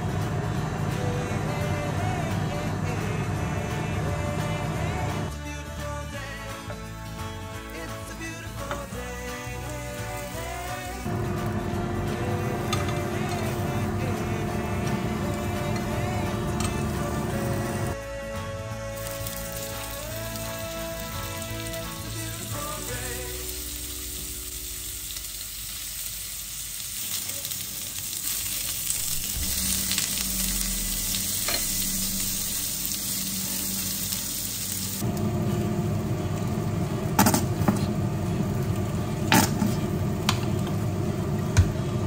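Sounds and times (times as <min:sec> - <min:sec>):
background music: 0:00.0 - 0:26.0, 0:28.8 - 0:42.0
meat sizzling on a grill pan: 0:07.2 - 0:11.5, 0:18.8 - 0:36.3.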